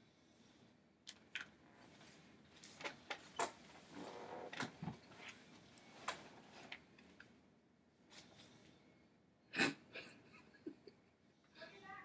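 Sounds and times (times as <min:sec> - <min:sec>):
chair creaking: 0:02.7 - 0:06.8.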